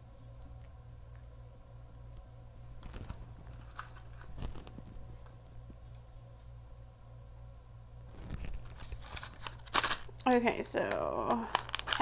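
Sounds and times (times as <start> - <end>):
steady low hum: 0.0 - 12.0
plastic tray crackling: 2.8 - 4.9, 8.2 - 12.0.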